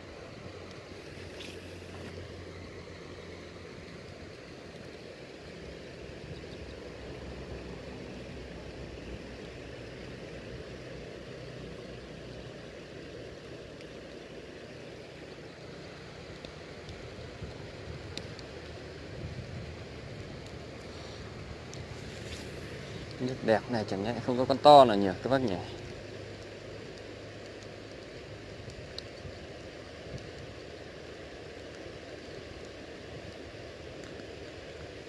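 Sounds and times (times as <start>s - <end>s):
stream flowing over stones: 0.0s - 35.0s
wind rumble on microphone: 16.8s - 24.2s.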